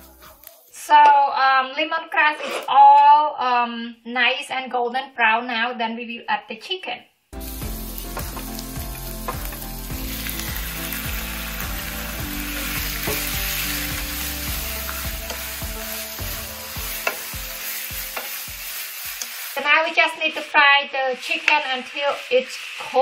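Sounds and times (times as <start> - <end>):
wooden spatula scraping wok: 0.0 - 0.8, 7.4 - 20.5
chicken sizzling in hot oil: 7.4 - 23.0.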